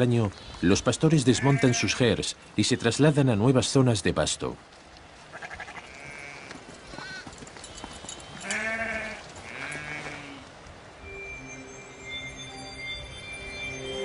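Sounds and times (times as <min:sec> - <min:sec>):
sheep bleating: 0:01.3 - 0:02.0, 0:05.3 - 0:07.2, 0:08.4 - 0:10.4.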